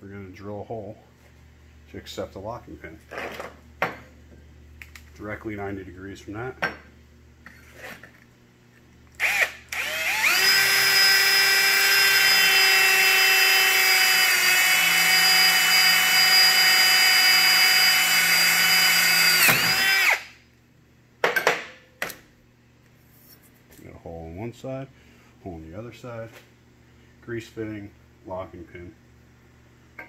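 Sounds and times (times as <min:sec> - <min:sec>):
power drill drilling into brass: 0:09.2 - 0:20.3.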